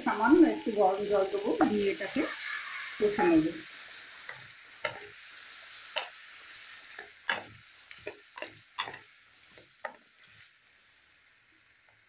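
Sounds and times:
vegetables sizzling in a pan: 0.0 - 12.0
spatula scraping and knocking pan: 6.8 - 10.1.

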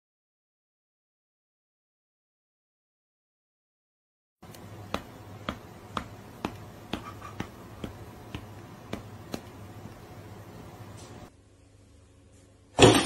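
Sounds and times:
low steady hum: 4.4 - 12.8.

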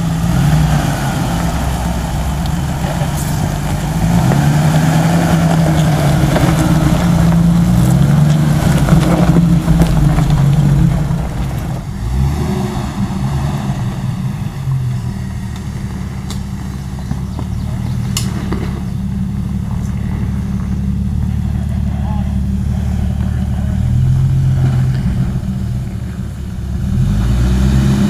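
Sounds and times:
off-road vehicle engine crawling: 0.0 - 28.0.

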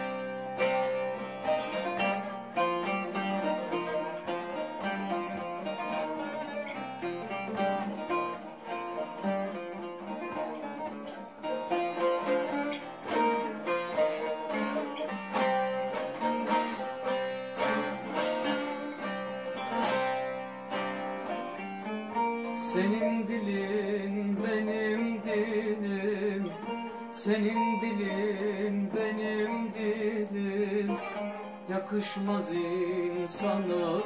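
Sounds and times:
long-necked lutes plucked and strummed: 0.0 - 34.0.

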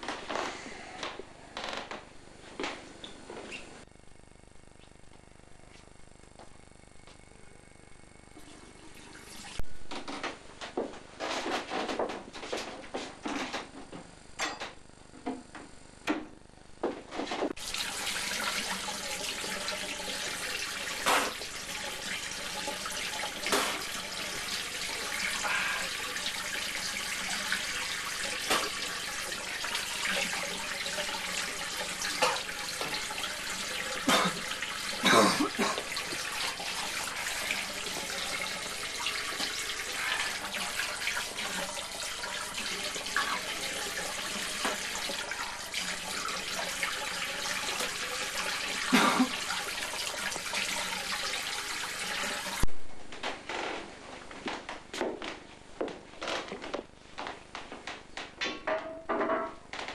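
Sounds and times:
tap running into washbasin: 17.6 - 52.7.

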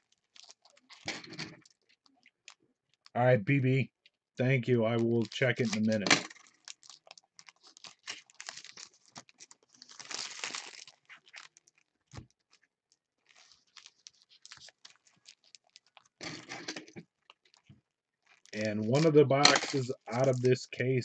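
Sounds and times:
foil wrapper tearing: 0.0 - 2.6, 5.2 - 12.6, 13.2 - 17.6
foil wrapper crinkling: 0.0 - 3.1, 4.9 - 20.5.

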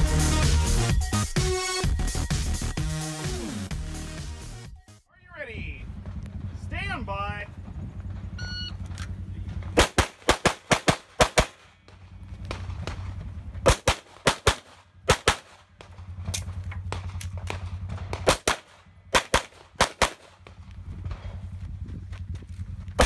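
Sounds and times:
low steady rumble: 4.5 - 23.0
pistol shots: 8.9 - 21.3.

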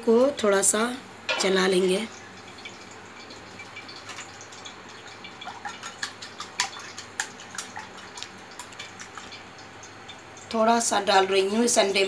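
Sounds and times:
wet slapping of egg: 3.7 - 10.0.

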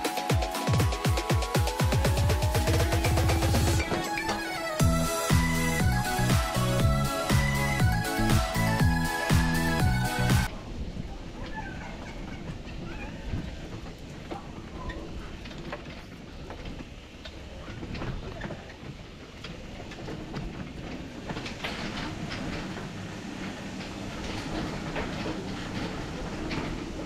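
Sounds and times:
wheels rumbling over brick paving: 11.2 - 27.0.

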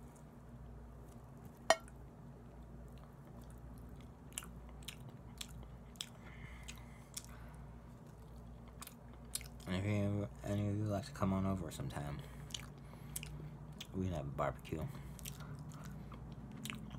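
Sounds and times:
low steady hum: 0.0 - 16.9
person chewing with mouth smacks: 2.9 - 9.7, 12.4 - 13.9, 15.0 - 16.9.

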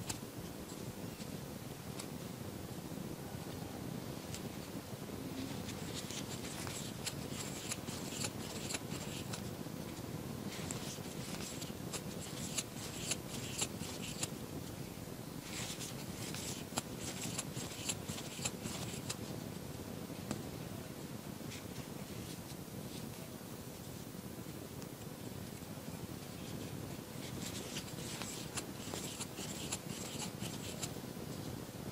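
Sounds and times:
low room hum: 0.0 - 31.9
crochet hook working yarn: 5.4 - 9.5, 10.5 - 14.3, 15.4 - 19.2, 27.2 - 31.0.

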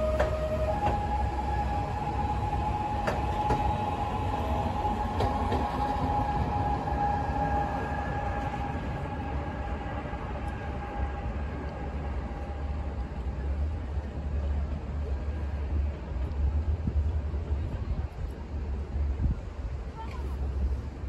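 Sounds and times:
electric train whine: 0.0 - 19.8.

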